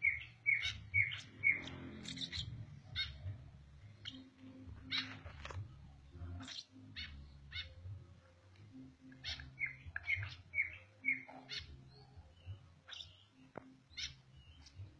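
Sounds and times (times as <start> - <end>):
parrot chirping and squawking: 0.0 - 3.4, 4.8 - 5.3, 6.4 - 7.8, 9.1 - 11.7, 14.0 - 14.2.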